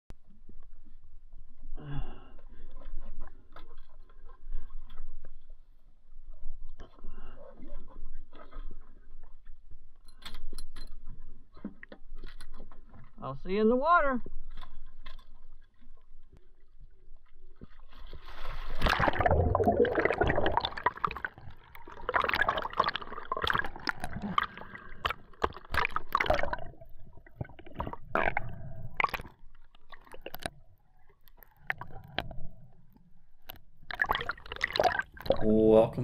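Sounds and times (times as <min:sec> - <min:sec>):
underwater bubbling: 0:15.4 - 0:36.0
water rushing over camera: 0:17.9 - 0:36.0.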